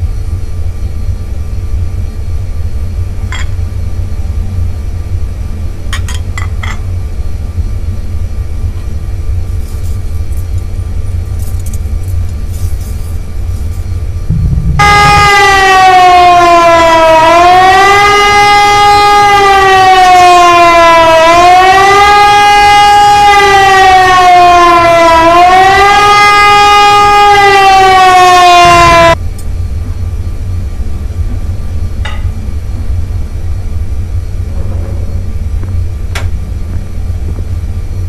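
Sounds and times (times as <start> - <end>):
steady low rumble: 0.0 - 17.7, 28.6 - 38.0
siren-like wailing tone: 14.2 - 29.2.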